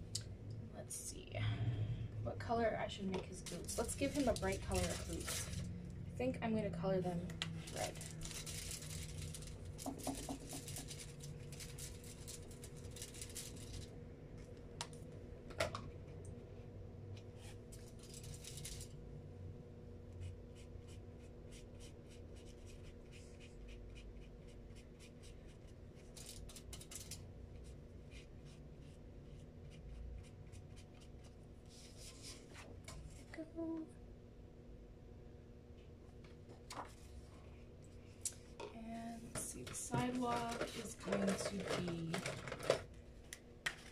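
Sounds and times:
marker scribbling on foil: 3.7s - 5.6s, 9.9s - 13.6s.

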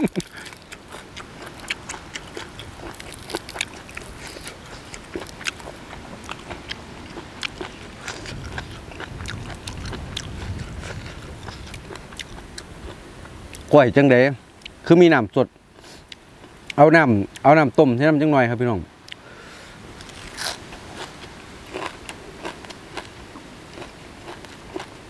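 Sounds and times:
chewing crunchy food: 0.0s - 13.7s, 20.0s - 25.0s.

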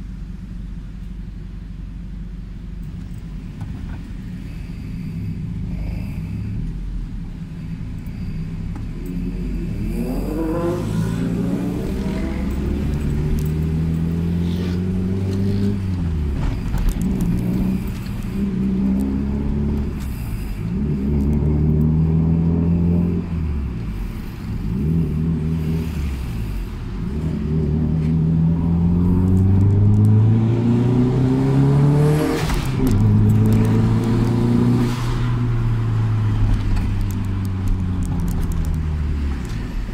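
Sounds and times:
car engine accelerating through gears: 8.7s - 39.9s.

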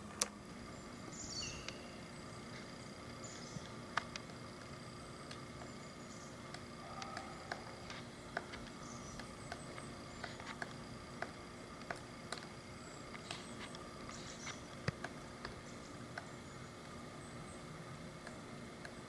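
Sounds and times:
woodpecker tapping wood: 3.4s - 16.4s.

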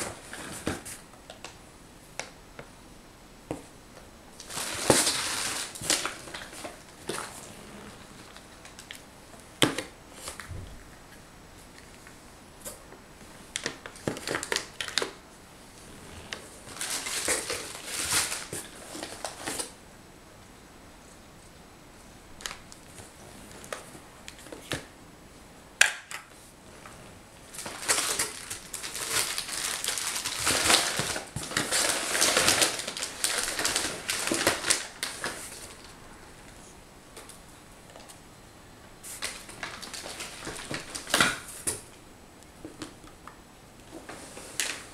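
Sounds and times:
foil trays and tins clicking: 4.4s - 7.3s, 13.6s - 15.2s, 16.7s - 19.7s, 27.5s - 35.9s, 39.2s - 41.9s
packaging rustling and crinkling: 4.4s - 9.0s, 13.5s - 15.2s, 15.8s - 19.8s, 26.8s - 36.6s, 39.0s - 41.9s, 43.9s - 44.9s
hand rummaging in cardboard box: 27.6s - 35.6s.

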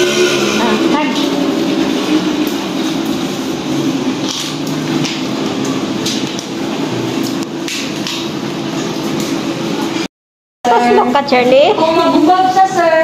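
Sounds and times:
machine drone: 0.0s - 7.6s.

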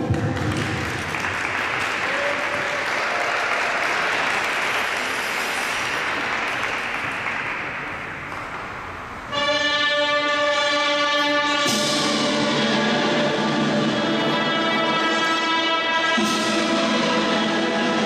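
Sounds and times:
audience applauding: 0.0s - 8.6s
music: 9.3s - 18.0s.

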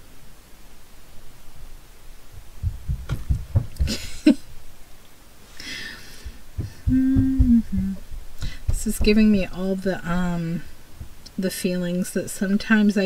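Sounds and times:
soft low thumps: 2.3s - 4.3s, 6.1s - 11.3s.

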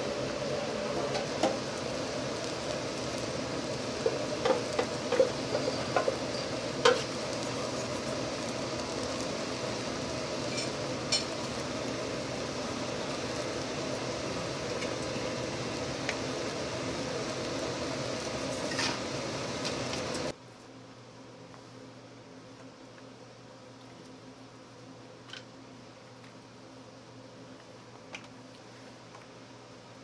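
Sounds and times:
sauce sizzling and bubbling: 0.0s - 20.4s.

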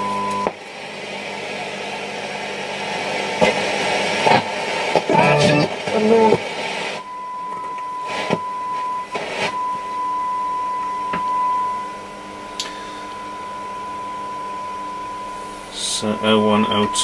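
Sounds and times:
steady test tone from loudspeaker: 0.0s - 0.6s, 5.0s - 6.4s, 7.0s - 17.0s
bursts of radio hiss: 4.2s - 7.1s, 8.1s - 8.4s, 9.1s - 9.6s.

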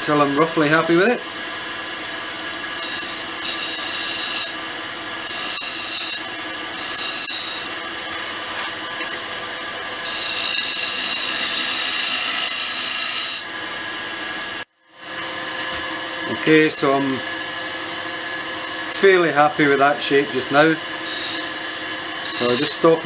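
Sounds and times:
lathe hum: 0.0s - 23.0s
gouge cutting spinning wood: 2.4s - 13.6s, 18.3s - 23.0s.

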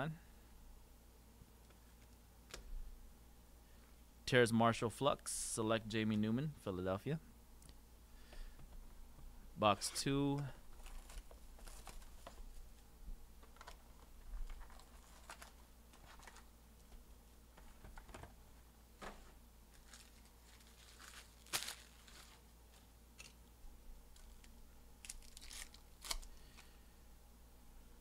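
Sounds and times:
foil wrappers crinkling: 10.7s - 12.8s, 13.4s - 16.5s, 19.7s - 23.4s, 24.1s - 26.8s
wrapper tearing: 19.7s - 23.4s, 24.2s - 26.7s.

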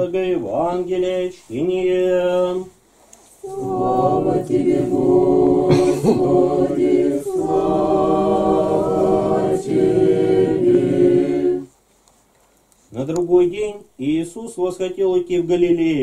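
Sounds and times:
unaccompanied liturgical chant: 0.0s - 2.7s, 3.4s - 11.8s.

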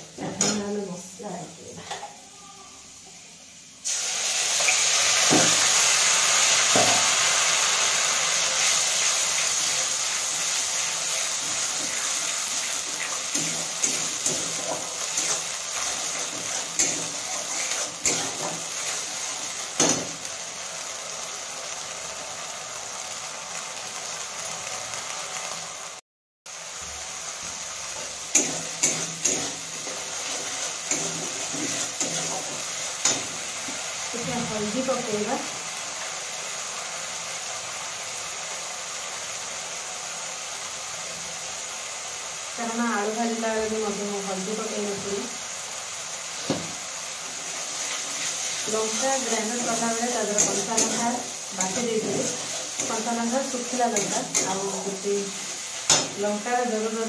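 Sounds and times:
paste sizzling in hot oil: 3.6s - 57.0s
spatula scraping pan: 12.8s - 20.1s, 28.0s - 33.8s.

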